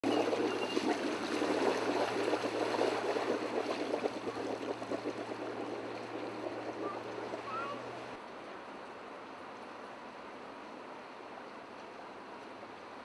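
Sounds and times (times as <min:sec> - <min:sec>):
boat motor humming: 0:00.0 - 0:08.2
water churning against hull: 0:00.0 - 0:08.2.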